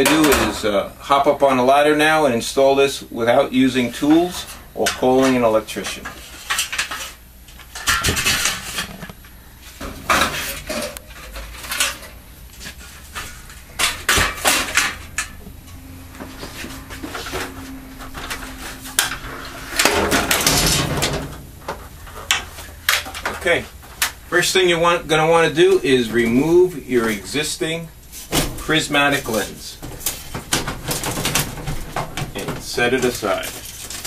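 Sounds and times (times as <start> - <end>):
ladder being climbed: 9.8 - 23.6
frame clattering and rattling: 18.2 - 23.4, 29.8 - 32.6.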